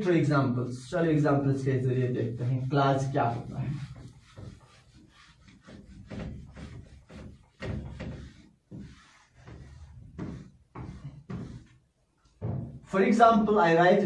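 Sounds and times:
eraser rubbing on whiteboard: 0:01.9 - 0:11.9.

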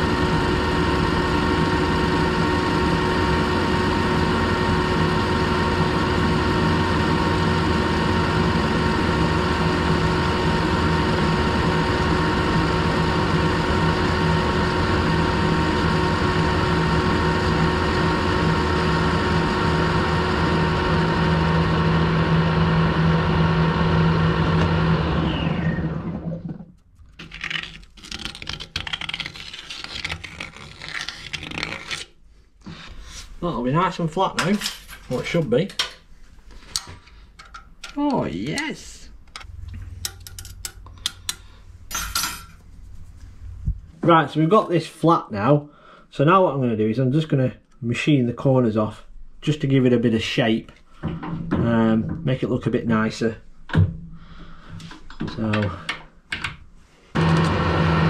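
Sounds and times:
lathe chuck spinning down: 0:57.2 - 0:58.0.

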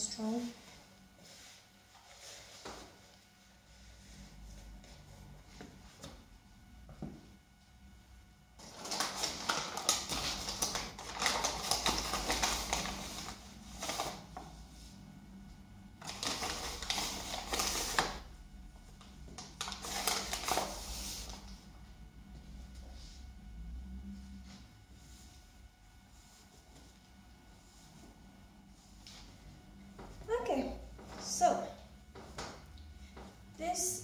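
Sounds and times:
paper packet crinkling: 0:08.6 - 0:14.2, 0:16.0 - 0:18.2, 0:19.4 - 0:21.4.

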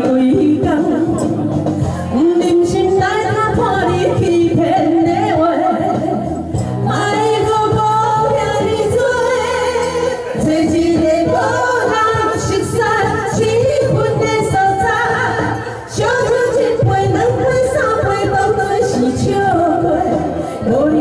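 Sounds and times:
karaoke backing track: 0:00.0 - 0:21.0
two women singing: 0:00.0 - 0:21.0.

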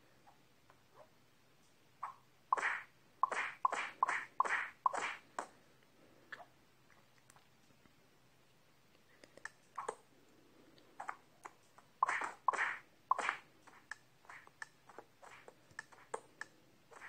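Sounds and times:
cartoon clicks and taps: 0:02.0 - 0:05.5, 0:09.2 - 0:10.0, 0:11.0 - 0:17.0.

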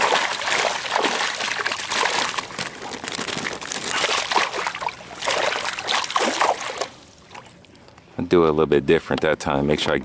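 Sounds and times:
fish splashing in water: 0:00.0 - 0:07.6.

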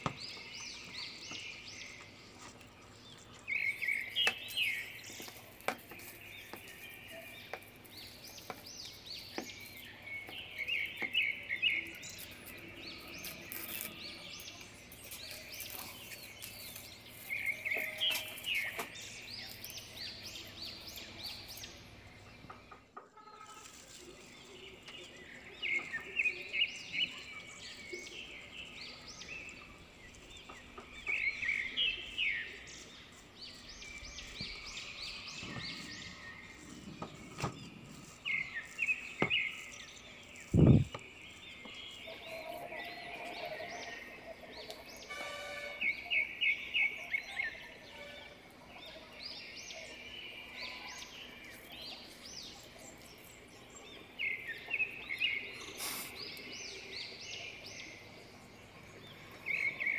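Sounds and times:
small birds chirping: 0:00.0 - 0:59.9
background hiss: 0:55.2 - 0:56.6.

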